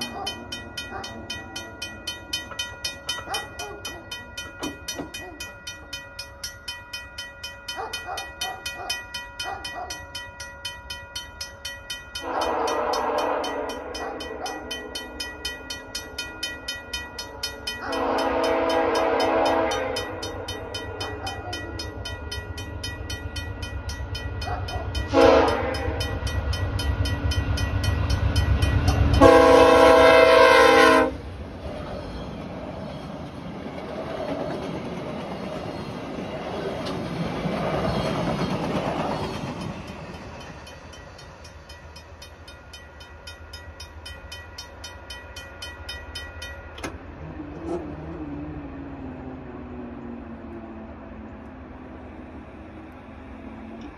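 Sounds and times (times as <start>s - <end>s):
crossing bell ringing: 0.0s - 47.3s
train rumble: 0.0s - 53.9s
locomotive horn blasts: 12.2s - 14.4s, 17.8s - 20.8s, 25.1s - 26.2s, 29.1s - 31.2s.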